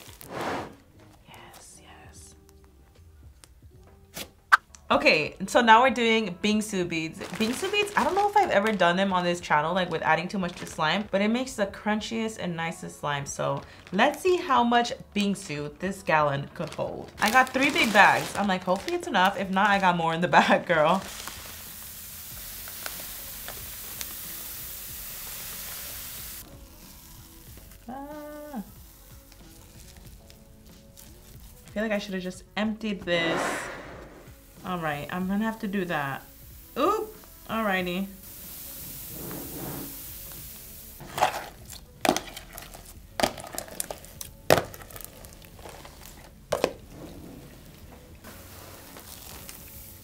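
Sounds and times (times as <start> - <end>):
faint background music: 0.0 - 50.0
beads pouring hiss: 7.3 - 8.4, 20.8 - 31.7, 33.2 - 46.7, 48.2 - 50.0.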